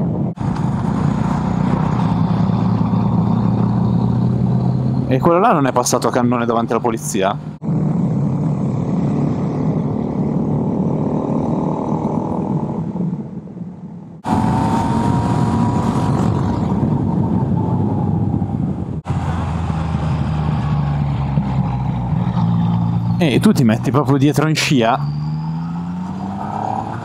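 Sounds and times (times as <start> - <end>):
wind rushing over microphone: 7.6 - 23.4.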